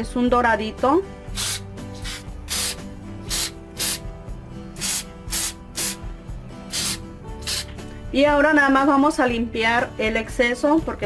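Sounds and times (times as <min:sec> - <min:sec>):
soft background music: 0:00.0 - 0:11.0
aerosol spray puffs: 0:01.3 - 0:04.1, 0:04.8 - 0:07.8.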